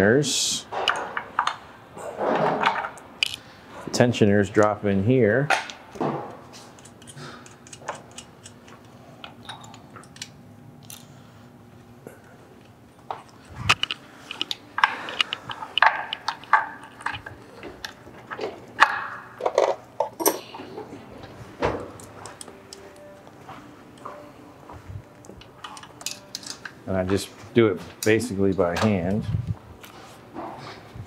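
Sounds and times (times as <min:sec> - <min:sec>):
metallic clinks of tools and parts: 0:25.6 - 0:26.7.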